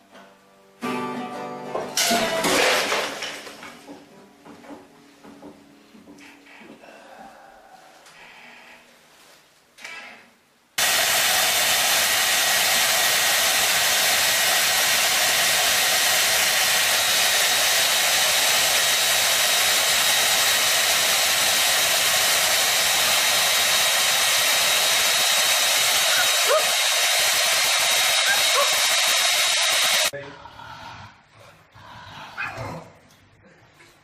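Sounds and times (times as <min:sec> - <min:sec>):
hair dryer blowing: 0:10.8 - 0:30.1.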